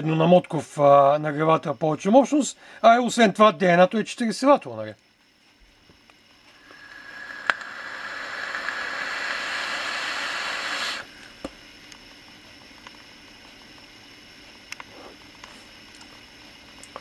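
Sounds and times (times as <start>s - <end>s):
vape air hiss and coil sizzling: 5.4s - 17.0s.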